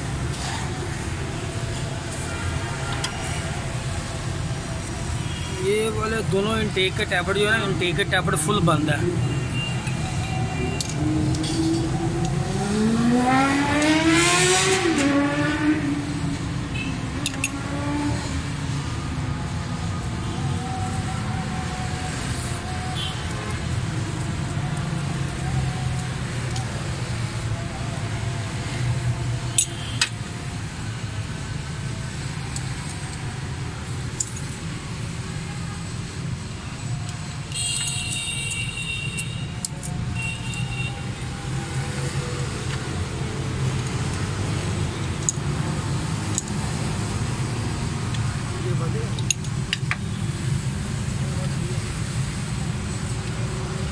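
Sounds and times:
low rumble of vehicle noise: 0:00.0 - 0:53.9
spanner clicking on metal: 0:17.2 - 0:17.6, 0:46.3 - 0:46.6, 0:49.1 - 0:50.0.

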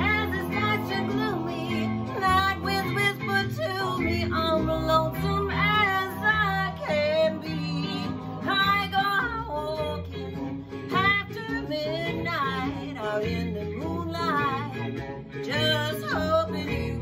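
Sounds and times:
guitar accompaniment: 0:00.0 - 0:17.0
woman singing: 0:00.0 - 0:17.0.

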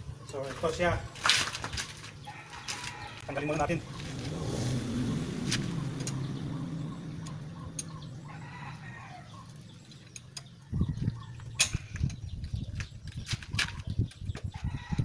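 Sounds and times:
rooster crowing: 0:02.2 - 0:03.6, 0:08.2 - 0:09.5, 0:14.6 - 0:15.0.

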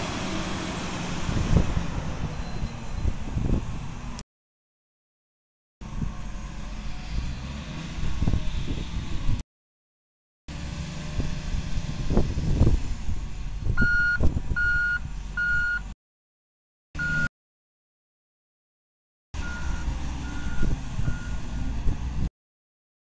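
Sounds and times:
wheel loader diesel engine: 0:00.0 - 0:04.2, 0:05.8 - 0:09.4, 0:10.5 - 0:16.0, 0:17.0 - 0:17.3, 0:19.4 - 0:22.3
reversing alarm beeps: 0:02.3 - 0:03.2, 0:13.8 - 0:15.8, 0:17.0 - 0:17.3, 0:19.4 - 0:21.4.

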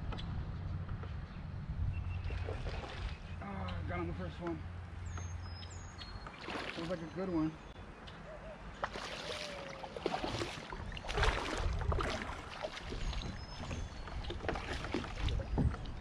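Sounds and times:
water splashing around kayak: 0:02.2 - 0:03.4, 0:06.2 - 0:07.4, 0:08.8 - 0:16.0.

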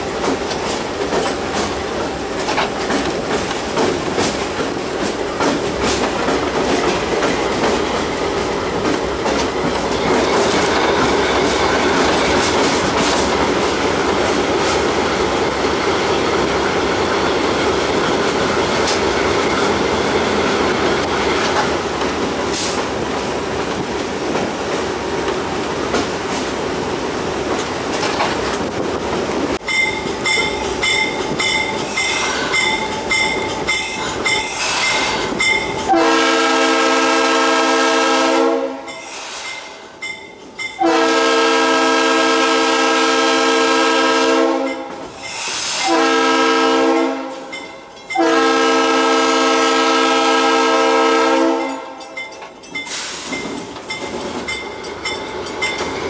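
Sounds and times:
wheels on rails: 0:00.0 - 0:36.0, 0:52.0 - 0:56.0
diesel locomotive engine: 0:00.0 - 0:56.0
locomotive bell ringing: 0:29.6 - 0:36.0, 0:38.9 - 0:41.0, 0:47.4 - 0:48.5, 0:51.6 - 0:56.0
locomotive air horn: 0:35.9 - 0:39.0, 0:40.8 - 0:44.9, 0:45.6 - 0:47.5, 0:48.2 - 0:52.0.

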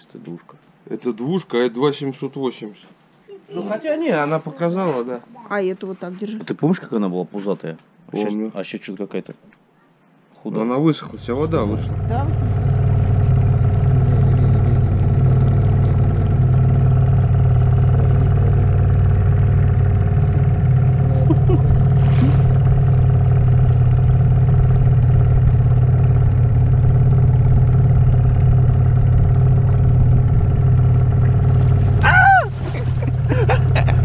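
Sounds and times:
outboard motor running: 0:11.1 - 0:34.0.

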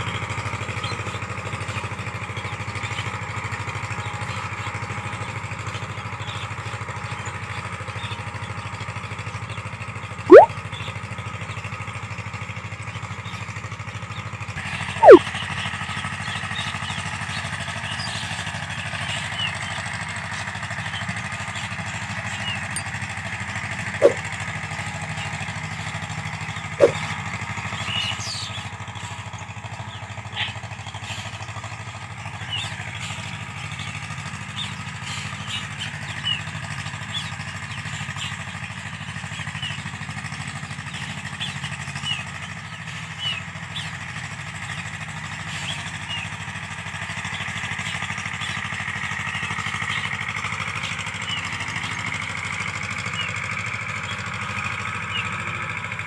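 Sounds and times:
tractor diesel engine running: 0:00.0 - 0:56.0
short high chirps: 0:15.0 - 0:15.2, 0:26.8 - 0:27.0.

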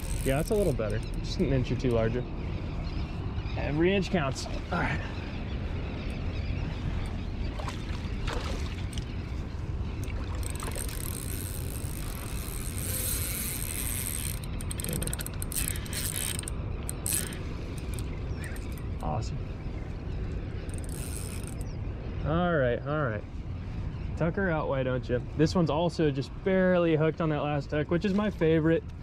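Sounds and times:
fishing reel whirring and clicking: 0:00.0 - 0:02.0, 0:10.0 - 0:18.9, 0:20.7 - 0:21.7.

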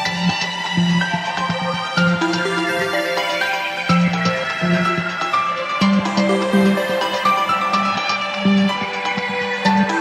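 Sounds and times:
synth music over steady beat: 0:02.0 - 0:08.5.

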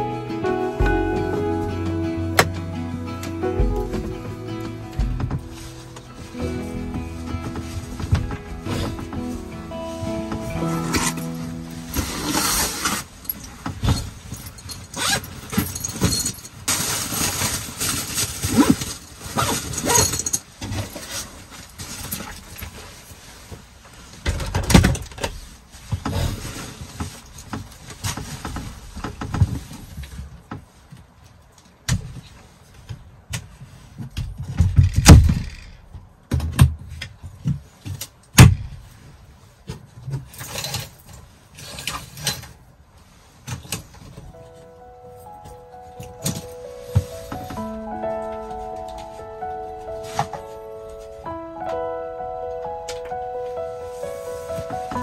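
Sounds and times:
heavy thumps: 0:00.8 - 0:10.8
rustling and clinking of objects: 0:01.8 - 0:51.8, 0:52.6 - 0:55.0.

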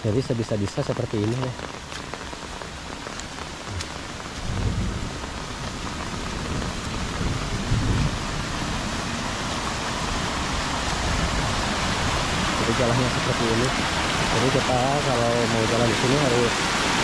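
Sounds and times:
heavy rain: 0:00.0 - 0:17.0
stream rushing water: 0:00.0 - 0:17.0
thunder rumbling: 0:03.7 - 0:08.9.

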